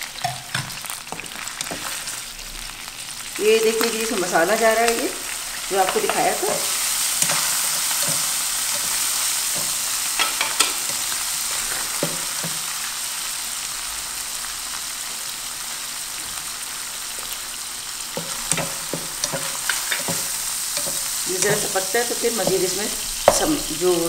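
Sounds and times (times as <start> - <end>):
meat sizzling in a frying pan: 0.0 - 24.0
spatula scraping and tapping: 0.2 - 2.1, 5.8 - 12.7, 18.1 - 23.6.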